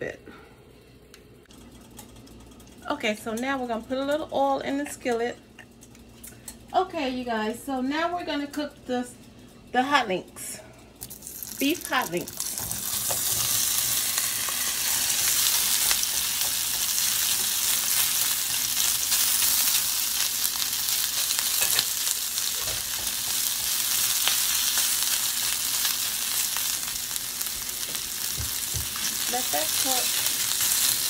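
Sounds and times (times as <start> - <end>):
meat sizzling in oil: 11.0 - 31.0.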